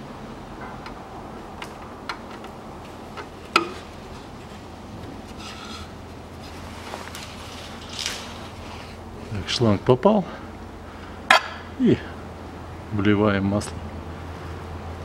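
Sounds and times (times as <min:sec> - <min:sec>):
low steady hum: 0:00.0 - 0:15.0
plastic hose rubbing: 0:03.2 - 0:09.0.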